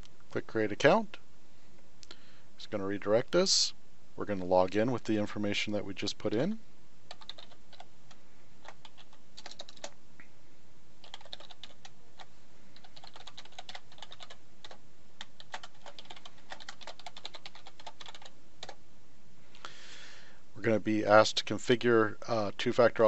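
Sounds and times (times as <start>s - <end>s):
typing on computer keyboard: 7.1s - 7.9s, 8.6s - 9.9s, 11.0s - 18.8s.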